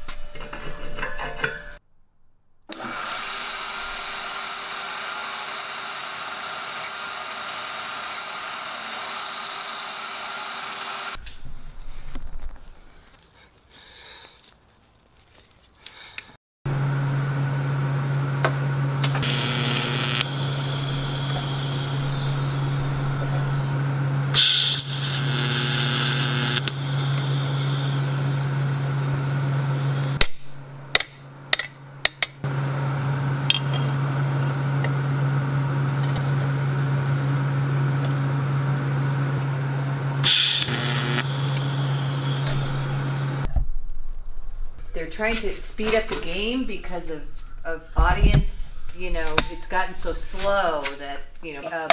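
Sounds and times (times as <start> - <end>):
welding machine humming: 2.7 - 11.2, 16.7 - 30.6, 32.5 - 43.5
hissing welding arc: 19.2 - 23.7, 24.3 - 28.2, 40.2 - 43.4.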